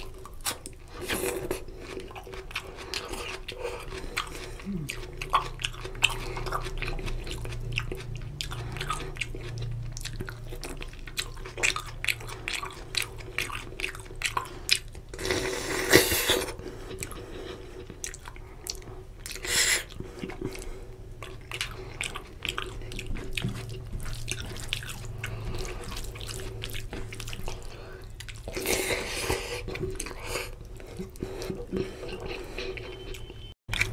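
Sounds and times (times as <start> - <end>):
squishing food by hand: 0.0 - 33.9
wet chewing and mouth clicks: 0.0 - 33.9.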